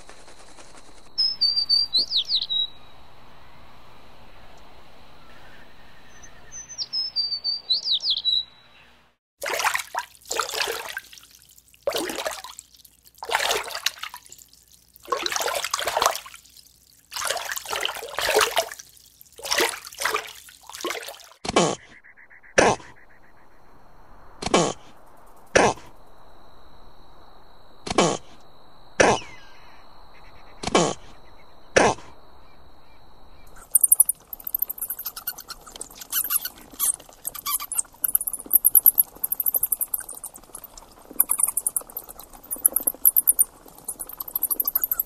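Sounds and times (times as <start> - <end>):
jerboa high-pitched ticking: 33.5 - 45.0.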